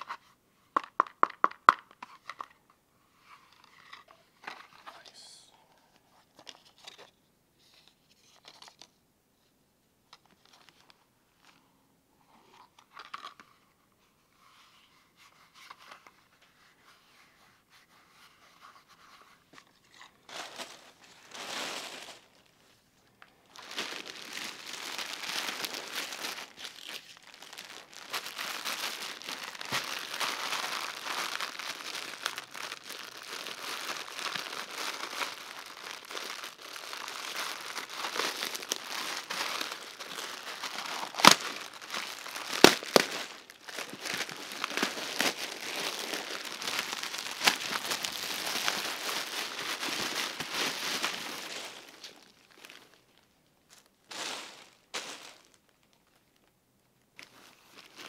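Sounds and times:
plastic bag crinkling: 19.8 - 53.2, 57.2 - 58.0.

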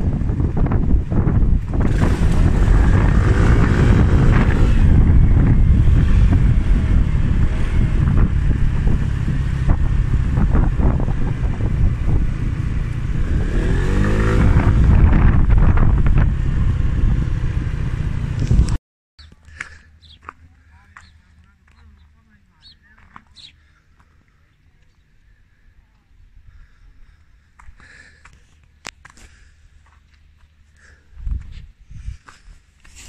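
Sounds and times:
scooter engine running: 0.0 - 18.7
wind buffeting microphone: 0.0 - 18.8, 31.1 - 32.4.

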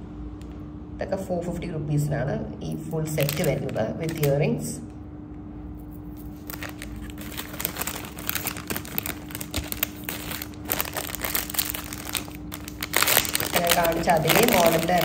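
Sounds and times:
faint steady hum: 0.0 - 15.0
plastic pouches crinkling: 3.1 - 4.4, 6.2 - 15.0.

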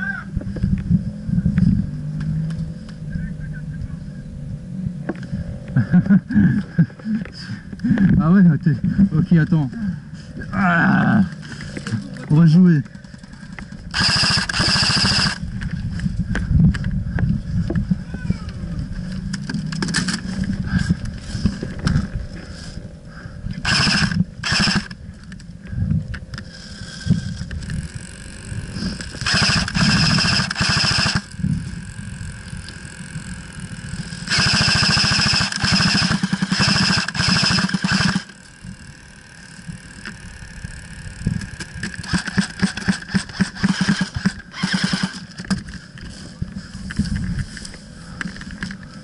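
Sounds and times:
airsoft guns firing bursts: 13.9 - 15.4, 23.6 - 24.9, 29.2 - 31.3, 34.3 - 38.4, 41.9 - 45.3.

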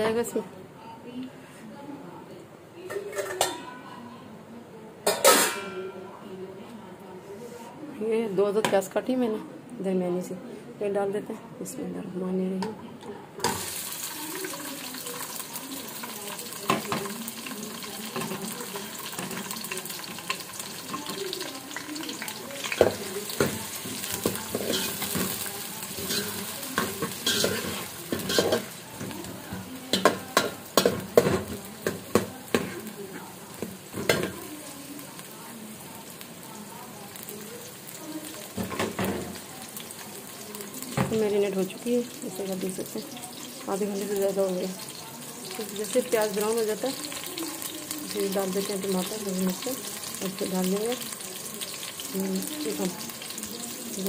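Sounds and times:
onions sizzling in oil: 13.4 - 54.0
metal ladle scraping pot: 24.5 - 28.7.

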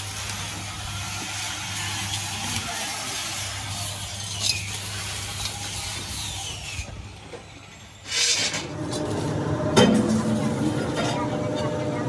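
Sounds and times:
power tool rushing hiss: 0.0 - 7.2.

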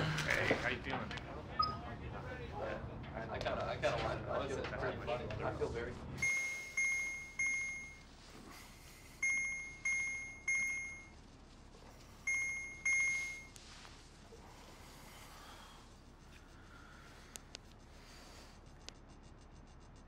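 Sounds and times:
alarm clock beeping: 6.2 - 8.1, 9.2 - 11.3, 12.2 - 13.6.

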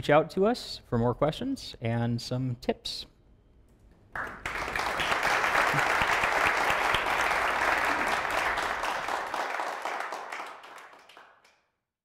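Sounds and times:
audience applauding: 4.2 - 11.6.

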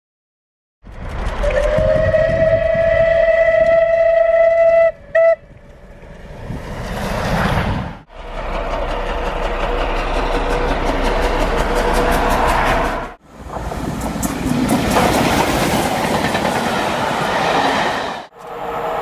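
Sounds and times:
steam train passing at speed: 0.8 - 19.0
steam locomotive whistle: 1.4 - 5.5.

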